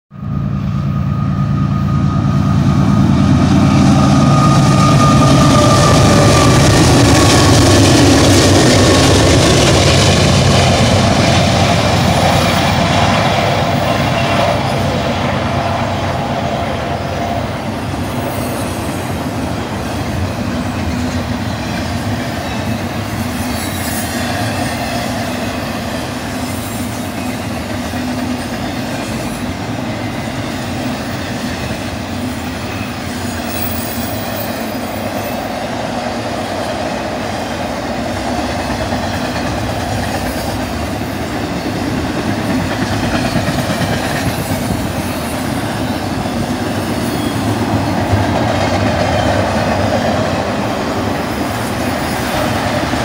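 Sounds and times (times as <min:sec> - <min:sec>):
diesel locomotives roaring: 0:00.1 - 0:53.0
train wheels rumbling on rail: 0:00.1 - 0:53.0
wheel squeal: 0:22.4 - 0:25.2, 0:32.3 - 0:35.5, 0:44.2 - 0:48.1.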